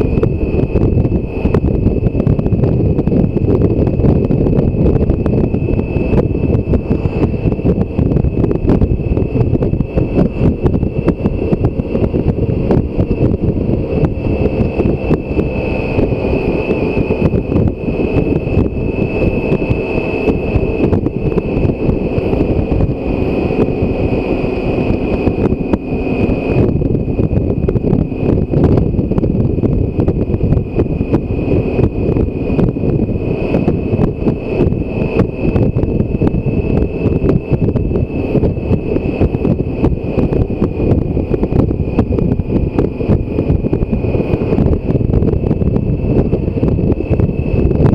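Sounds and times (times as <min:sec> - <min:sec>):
motorcycle engine running: 0:00.0 - 0:47.9
thin high whine: 0:00.0 - 0:47.9
wind buffeting microphone: 0:00.0 - 0:47.9.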